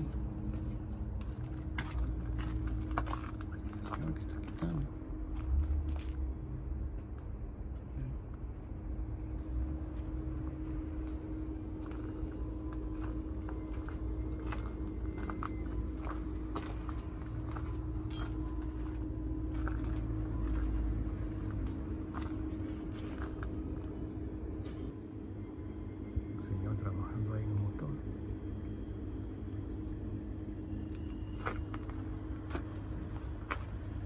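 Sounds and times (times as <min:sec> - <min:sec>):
low rumble: 0:00.0 - 0:34.0
steady low hum: 0:00.0 - 0:34.0.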